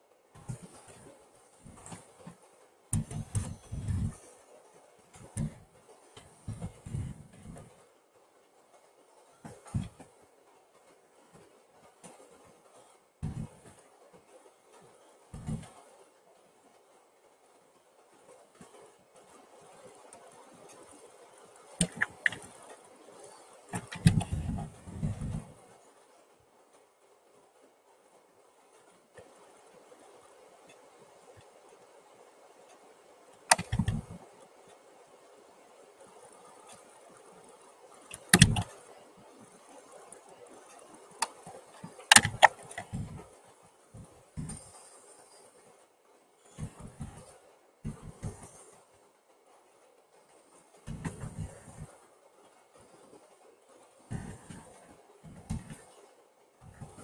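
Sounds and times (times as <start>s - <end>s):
sharp clicks and taps: 21.8s - 22.5s, 23.8s - 25.5s, 33.5s - 34.2s, 38.1s - 38.7s, 41.2s - 43.2s.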